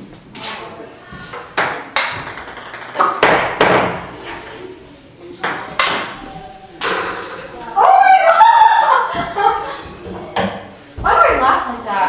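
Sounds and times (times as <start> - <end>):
ping-pong ball on paddles: 1.6 - 3.4
ping-pong ball bouncing on table: 1.6 - 3.8.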